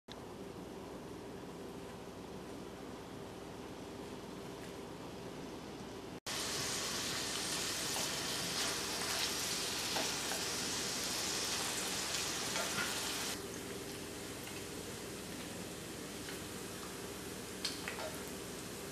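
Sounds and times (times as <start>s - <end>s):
meat sizzling in oil: 6.3s - 13.4s.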